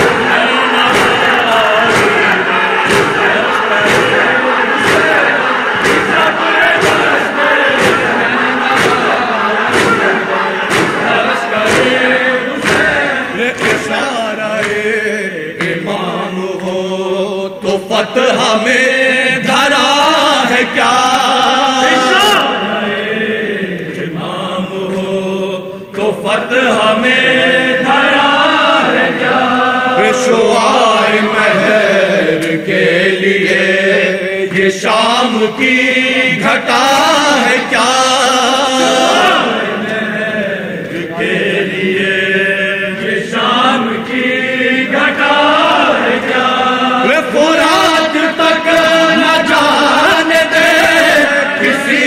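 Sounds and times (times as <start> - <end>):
men chanting a lament: 0.0 - 52.0
rhythmic chest-beating slaps: 0.0 - 52.0.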